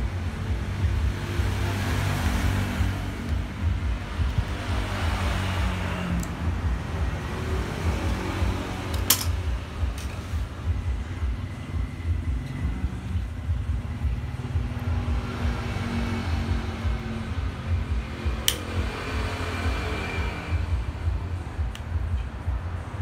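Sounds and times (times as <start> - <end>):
sharp click: 18.4 - 18.8.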